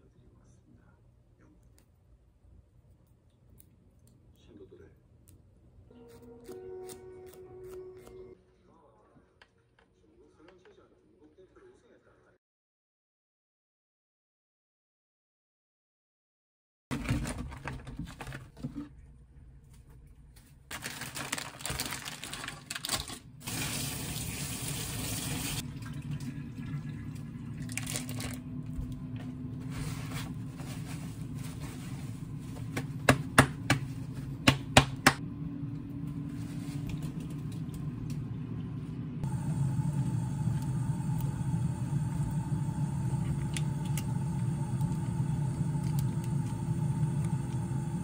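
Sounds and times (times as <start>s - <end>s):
paper towel handling: 29.6s - 34.5s
hand slapping meat: 32.8s - 35.2s.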